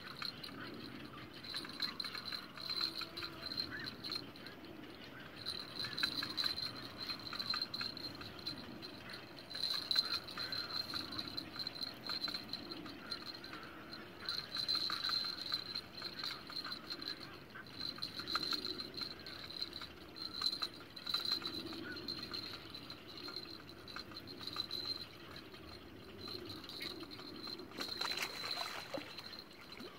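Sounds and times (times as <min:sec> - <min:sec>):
insects chirping: 0:00.0 - 0:29.9
insects trilling: 0:00.0 - 0:29.9.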